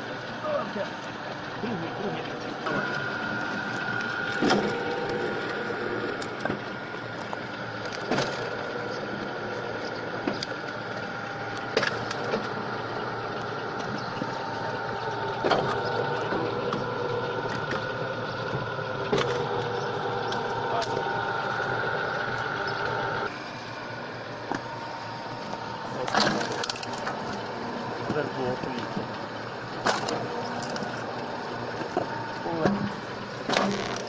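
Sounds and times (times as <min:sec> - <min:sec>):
wood chipper whining: 0:00.0 - 0:34.0
wood cracking in chipper: 0:02.6 - 0:23.3, 0:24.5 - 0:34.0.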